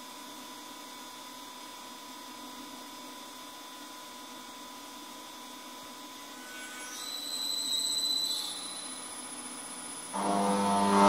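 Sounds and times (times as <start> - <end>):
high whine: 6.2 - 11.0
fan motors deep hum: 7.8 - 11.0.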